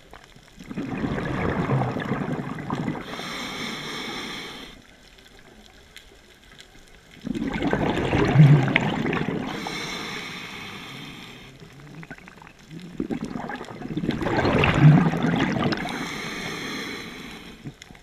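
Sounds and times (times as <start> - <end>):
bubbling exhaled air: 0.6 - 4.8, 7.2 - 18.0
regulator hiss: 3.0 - 4.8, 9.5 - 11.6.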